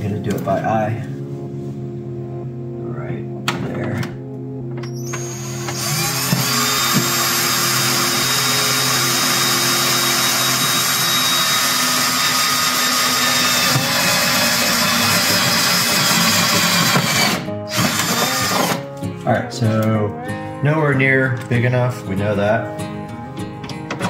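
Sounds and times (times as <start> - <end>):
cordless drill boring into plastic: 5.0 - 18.8.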